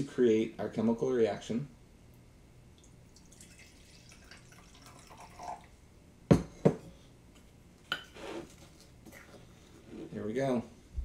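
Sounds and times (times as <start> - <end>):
liquid trickling into glass: 2.8 - 5.7
glass knocking on countertop: 6.3 - 6.8.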